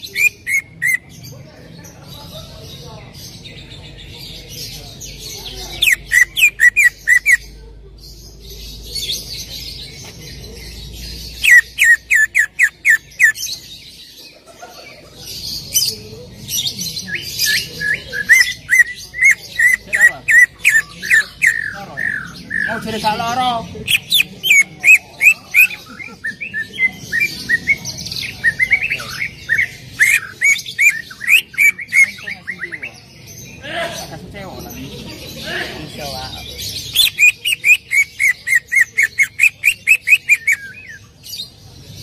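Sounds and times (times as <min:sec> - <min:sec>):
bird scratchy chattering: 0:00.0 - 0:01.2, 0:04.6 - 0:07.5, 0:08.8 - 0:14.4, 0:15.2 - 0:33.0, 0:36.4 - 0:41.2
bird whistling song: 0:11.4 - 0:13.6, 0:23.9 - 0:32.8, 0:36.9 - 0:41.5.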